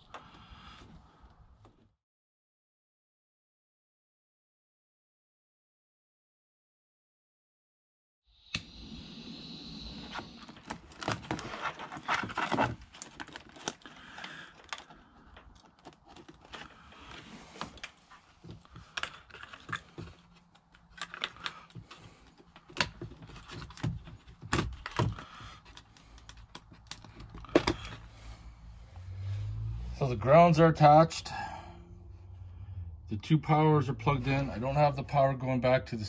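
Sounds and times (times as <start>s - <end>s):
clicks and taps of wiring work: 17.6s - 28.0s.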